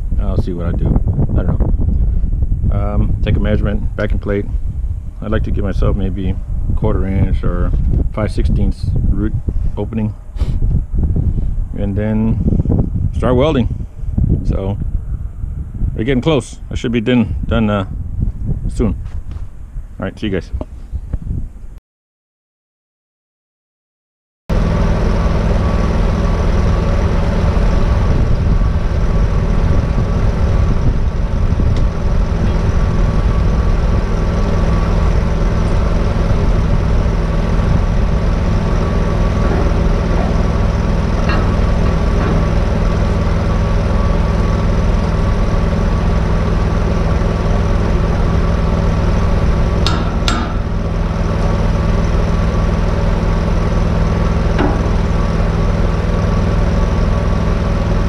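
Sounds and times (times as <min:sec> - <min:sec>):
welder engine running: 0:24.5 - 0:58.0.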